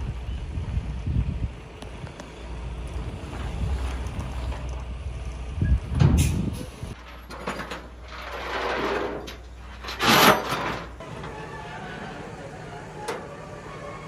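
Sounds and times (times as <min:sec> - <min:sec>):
truck engine hum: 0:00.0 - 0:14.0
metal container scraping and clunking: 0:06.0 - 0:12.3.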